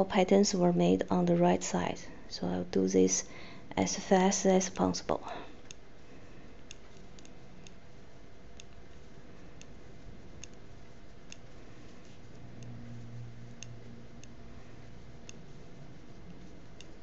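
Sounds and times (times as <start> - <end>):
steady room hiss: 0.0 - 17.0
metal knitting needles clicking: 6.6 - 7.8, 8.5 - 9.0, 10.4 - 11.6, 12.3 - 17.0.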